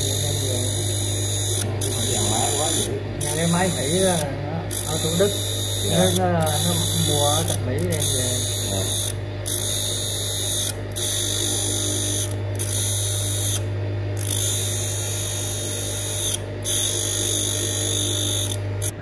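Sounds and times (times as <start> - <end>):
sharpening machine humming: 0.0 - 19.0.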